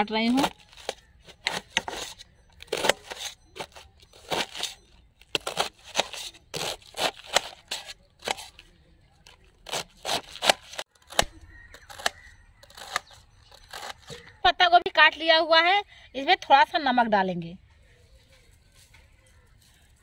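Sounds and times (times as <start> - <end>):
knife slicing cabbage: 0.1 - 14.2.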